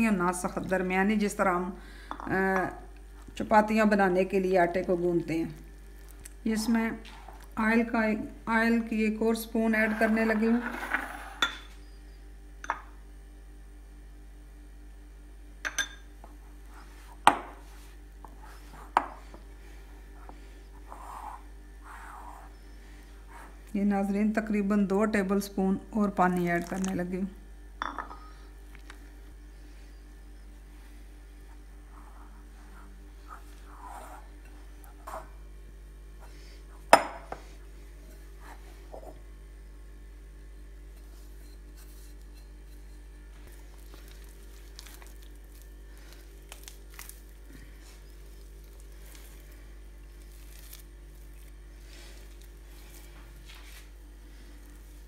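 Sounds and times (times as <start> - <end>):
steady low hum: 0.0 - 55.0
glass bowl knocking and clinking: 10.6 - 11.7, 12.6 - 13.0, 15.6 - 16.1, 27.8 - 28.3, 37.0 - 37.4
clink against glass bowl: 11.4 - 11.7, 15.6 - 16.1, 27.8 - 28.3
hands kneading wet dough: 26.1 - 27.3, 43.4 - 55.0.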